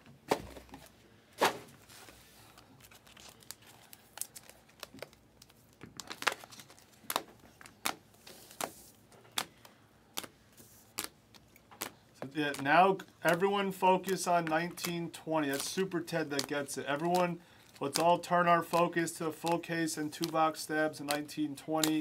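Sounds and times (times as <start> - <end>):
cards rustling: 1.7 - 22.0
plastic card holders clicking: 21.0 - 22.0.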